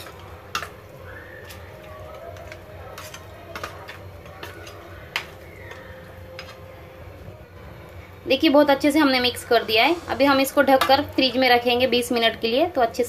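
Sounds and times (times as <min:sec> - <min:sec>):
spoon stirring meat in marinade: 0:00.0 - 0:07.2.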